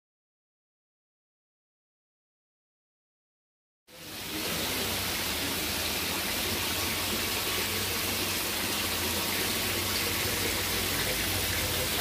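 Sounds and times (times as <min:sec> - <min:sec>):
water pouring into tank: 0:03.9 - 0:12.0.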